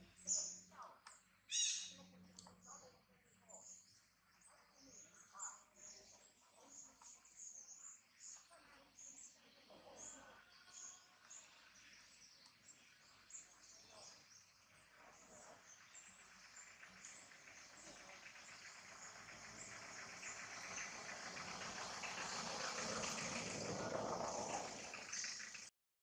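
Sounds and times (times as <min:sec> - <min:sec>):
hiss: 0:17.0 - 0:25.6.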